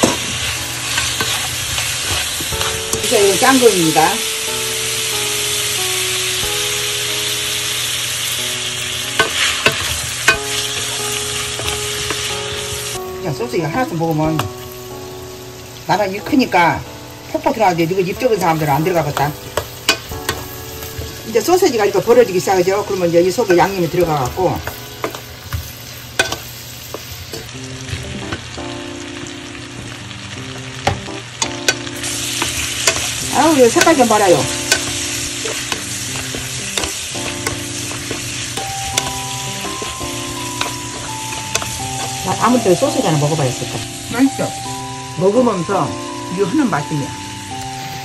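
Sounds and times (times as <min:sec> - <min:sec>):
sausages sizzling in oil: 0:00.0 - 0:48.0
wooden spoon knocking on pan: 0:30.5 - 0:42.6.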